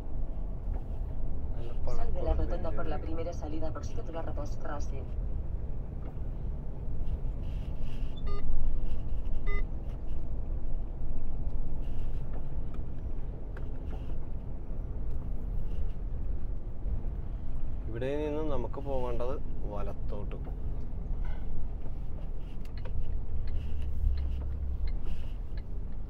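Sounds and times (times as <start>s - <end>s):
truck engine and road drone: 0.0s - 26.0s
short electronic beeps: 8.2s - 8.5s, 9.4s - 9.7s.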